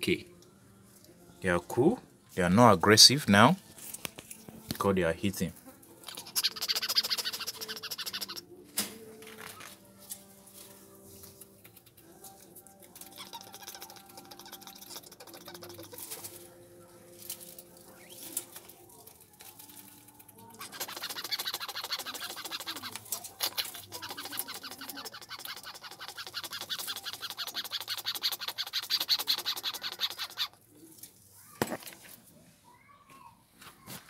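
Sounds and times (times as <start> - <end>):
rodents chewing grass: 10.0 - 31.2.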